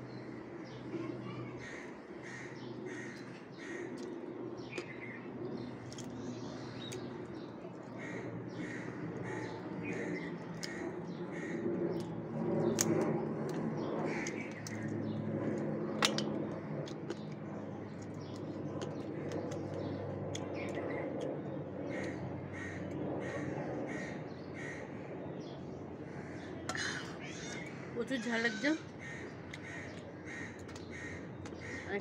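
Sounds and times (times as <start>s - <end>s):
low hum: 0.0s - 32.0s
crows cawing: 1.2s - 4.2s, 7.9s - 12.1s, 14.1s - 14.8s, 21.9s - 25.1s, 26.0s - 32.0s.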